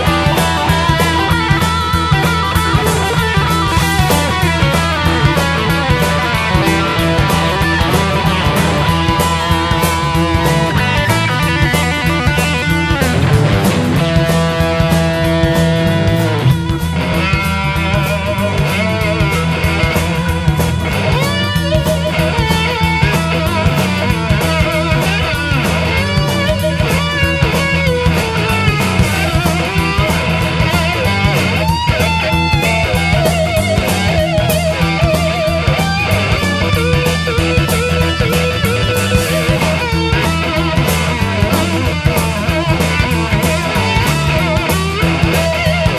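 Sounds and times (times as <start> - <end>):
bass guitar: 0.0 - 45.9
drum kit: 0.0 - 45.9
electric guitar lead: 0.0 - 45.9.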